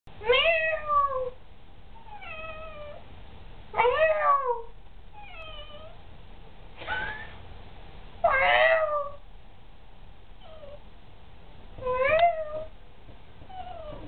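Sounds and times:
cat meowing: 0.2 - 1.4, 2.0 - 3.0, 3.8 - 6.0, 8.2 - 9.2, 11.8 - 12.7, 13.5 - 14.0.

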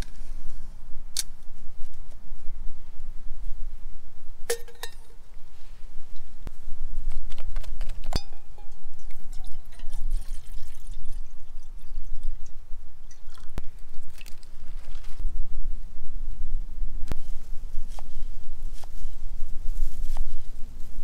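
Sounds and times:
low wind rumble: 0.0 - 21.0
metal pots clinking: 8.1 - 9.8.

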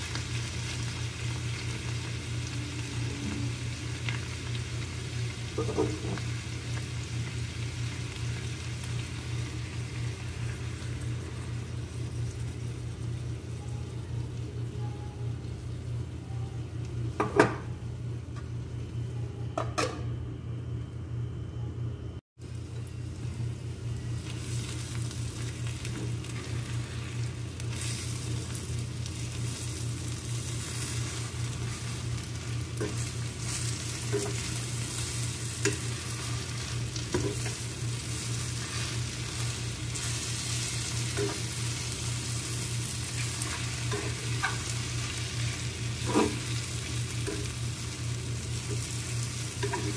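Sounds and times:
food sizzling in a pan: 0.0 - 18.2, 22.4 - 49.9
low hum: 0.0 - 49.9
metal spoon scraping a pan: 46.0 - 46.5.

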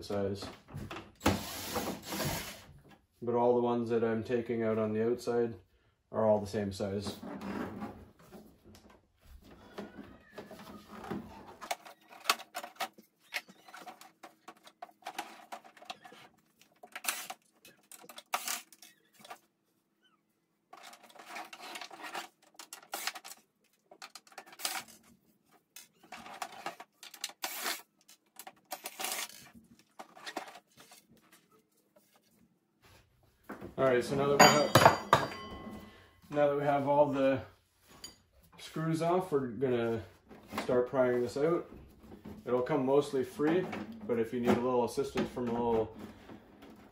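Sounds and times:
screws clicking and clinking: 25.8 - 29.6.

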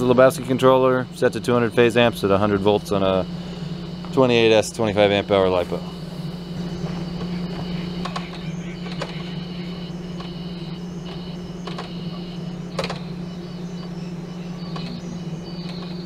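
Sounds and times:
electric motor humming and whining: 0.0 - 16.0
motor clicks: 11.0 - 13.1, 14.6 - 16.0.

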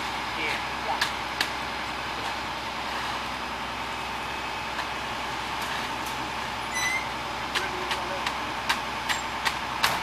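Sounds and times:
truck engine running: 0.0 - 10.0.

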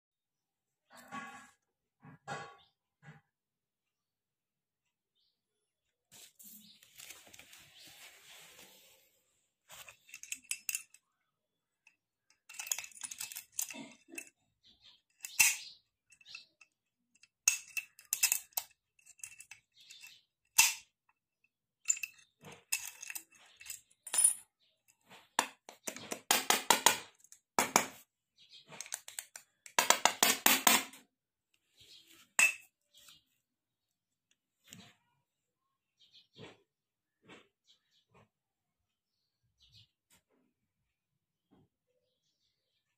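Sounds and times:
padlock rattling: 9.8 - 11.2, 11.8 - 20.9, 21.8 - 24.4.

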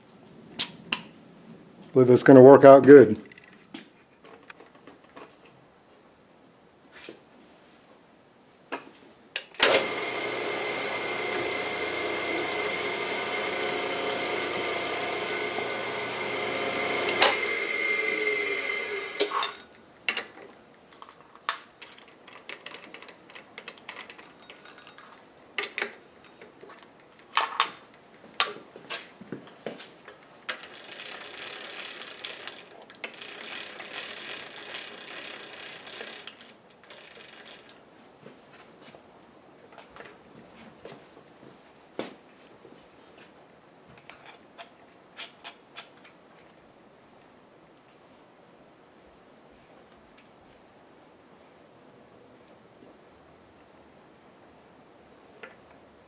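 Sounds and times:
drill press whining: 9.6 - 19.6, 30.6 - 37.7
metal tools clicking: 19.2 - 20.3.

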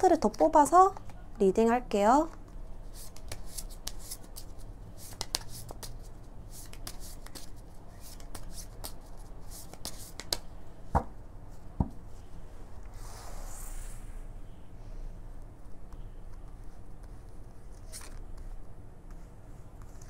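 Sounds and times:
cards being shuffled: 2.3 - 10.5, 16.3 - 19.2.

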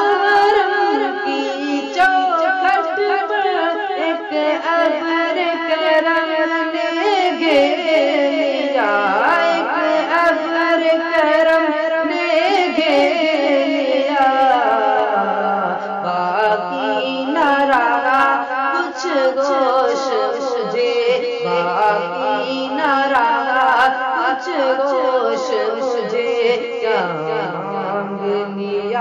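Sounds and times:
boy singing a cappella: 0.0 - 29.0.

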